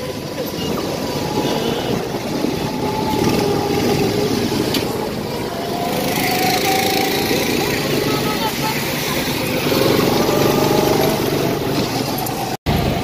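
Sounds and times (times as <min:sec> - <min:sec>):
go-kart engine running: 0:00.0 - 0:13.0.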